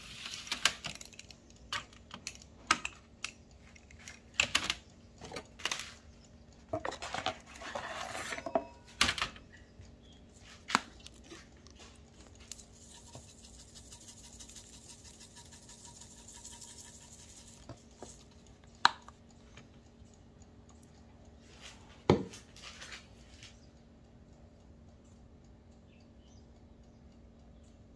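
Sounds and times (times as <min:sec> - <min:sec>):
low steady hum: 0:00.0 - 0:27.9
metal utensils clacking on a tray: 0:06.7 - 0:09.4
herbs rattling in a glass jar: 0:12.8 - 0:18.2.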